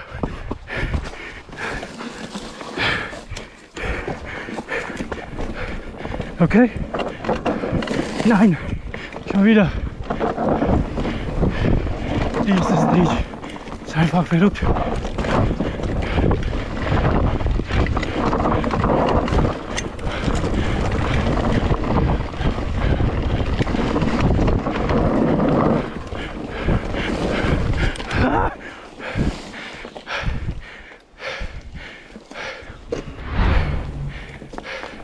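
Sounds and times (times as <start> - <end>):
bike tyres rolling on dirt: 0.0 - 35.0
wind buffeting microphone: 3.8 - 13.6, 14.4 - 35.0.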